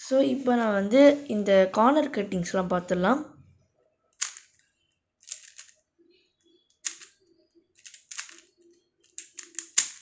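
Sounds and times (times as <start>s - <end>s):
puzzle cube plastic clicks: 4.2s - 4.6s, 5.2s - 5.8s, 6.8s - 7.2s, 7.8s - 10.0s.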